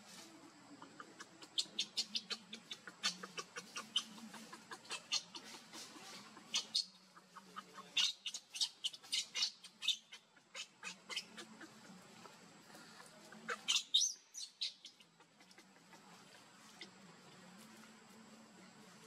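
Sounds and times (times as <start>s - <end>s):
baby monkey crying in high squeaks: 6.4s - 7.0s, 8.0s - 11.4s.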